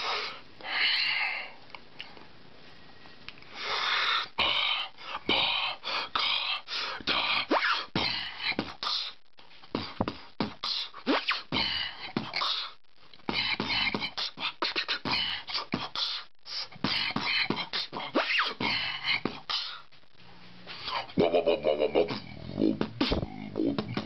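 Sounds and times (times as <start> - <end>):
person beatboxing: 4.2 - 19.9, 20.8 - 24.0.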